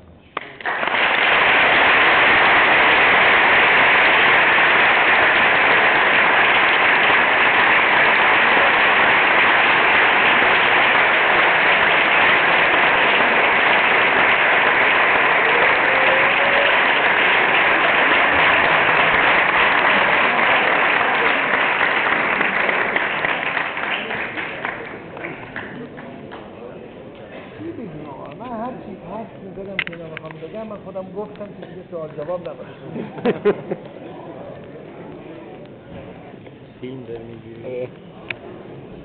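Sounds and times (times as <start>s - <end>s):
audience applause: 0.4s - 26.4s.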